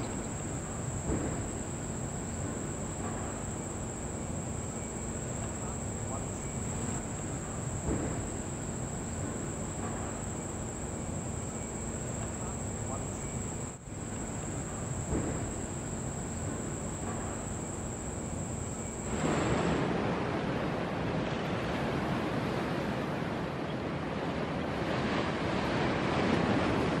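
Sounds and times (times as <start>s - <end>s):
high-pitched insect drone: 0.0s - 19.2s
loud even rushing noise: 19.0s - 20.5s.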